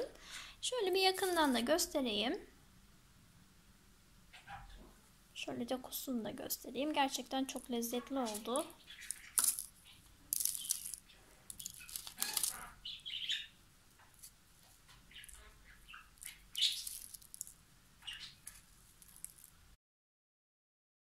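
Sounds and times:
cookies crumbling between fingers: 0:08.3 - 0:12.8, 0:15.2 - 0:17.6, 0:18.4 - 0:19.6.

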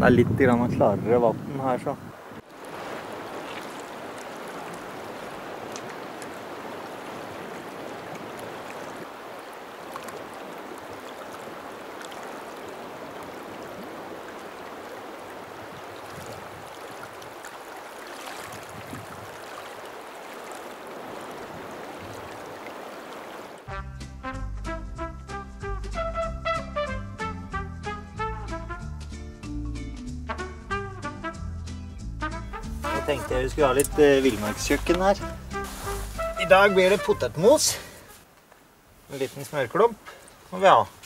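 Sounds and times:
river water rushing: 0:02.1 - 0:23.7.

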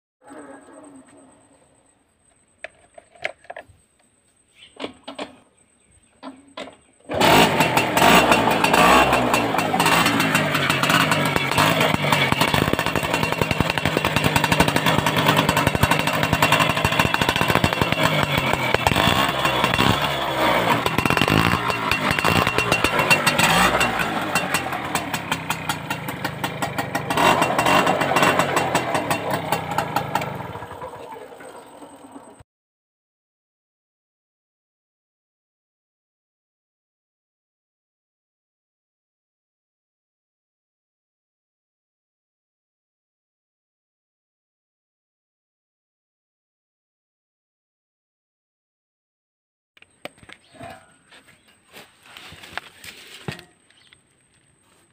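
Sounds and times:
moped engine running loudly: 0:07.1 - 0:30.9.

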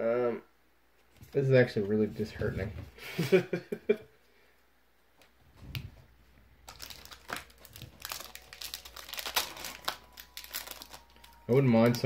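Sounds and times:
foil wrapper crinkling: 0:06.6 - 0:12.0.

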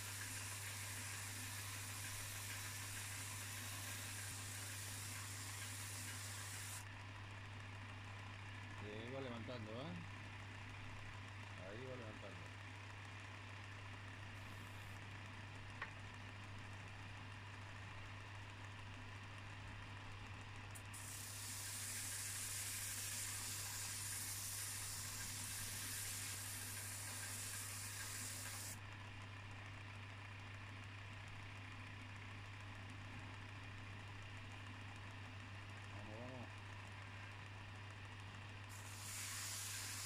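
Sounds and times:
belt sander humming: 0:00.0 - 0:06.8, 0:20.9 - 0:28.8, 0:38.7 - 0:40.0
steel scraping on sanding belt: 0:00.0 - 0:06.8, 0:21.0 - 0:28.8, 0:38.7 - 0:40.0.

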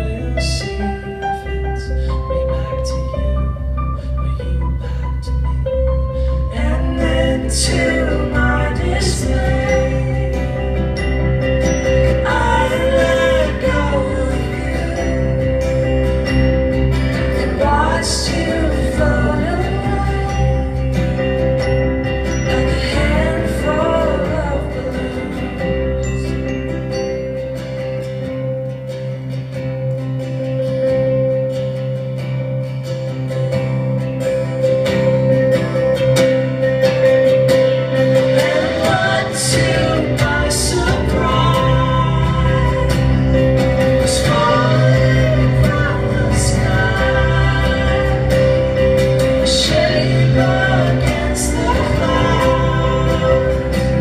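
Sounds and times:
acoustic guitar: 0:00.0 - 0:54.0
deep bass: 0:00.0 - 0:54.0
live band playing: 0:00.0 - 0:54.0
woman singing: 0:06.4 - 0:10.8, 0:12.1 - 0:15.8, 0:17.4 - 0:21.2, 0:22.5 - 0:26.0, 0:38.2 - 0:54.0.

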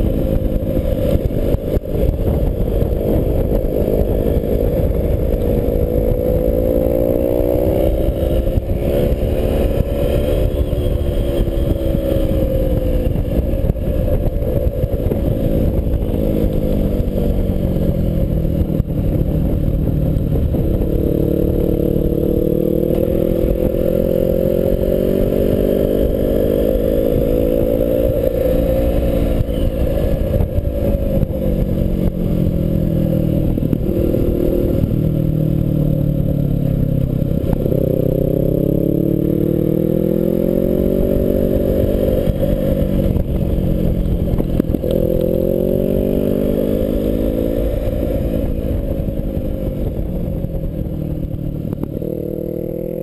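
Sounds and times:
motorcycle engine revving: 0:00.0 - 0:53.0
road and wind noise: 0:00.0 - 0:53.0.

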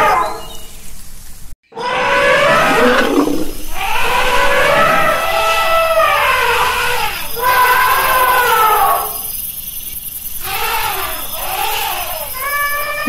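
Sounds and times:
elephant trumpeting calls: 0:01.8 - 0:09.3, 0:10.4 - 0:13.0.

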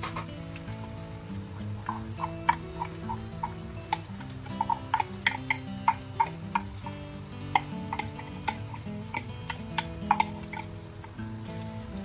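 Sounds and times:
spatula tapping glass blender jar: 0:01.9 - 0:11.2.

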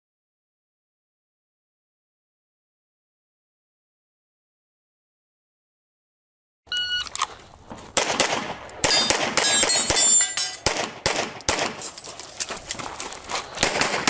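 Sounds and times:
electronic start beep: 0:06.7 - 0:07.1
pistol shots: 0:08.0 - 0:11.9, 0:13.6 - 0:14.0
steel targets ringing: 0:08.7 - 0:10.7.

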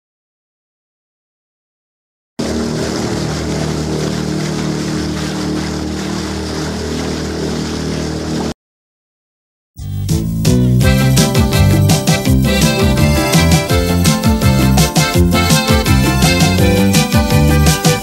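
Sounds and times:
motorboat engine drone: 0:02.4 - 0:08.6, 0:09.8 - 0:18.0
water rushing and splashing: 0:02.4 - 0:08.6
music: 0:09.8 - 0:18.0.

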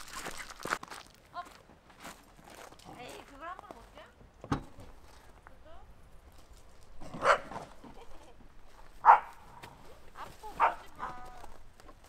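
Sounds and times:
dog barking: 0:07.2 - 0:07.6, 0:09.0 - 0:09.6, 0:10.2 - 0:11.3.

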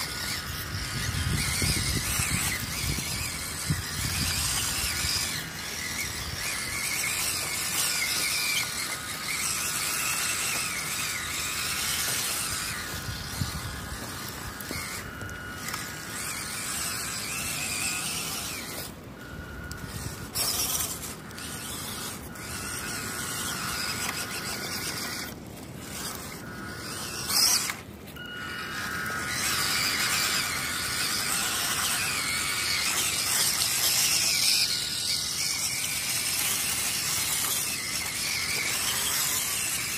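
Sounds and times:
toy truck electric motor whining: 0:00.0 - 0:39.9
wheels driving over wet leaves: 0:00.0 - 0:39.9.

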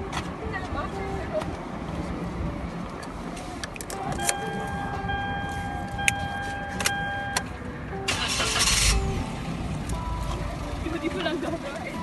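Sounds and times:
car engine rumbling: 0:00.0 - 0:12.0
steady high tone: 0:04.0 - 0:11.2.

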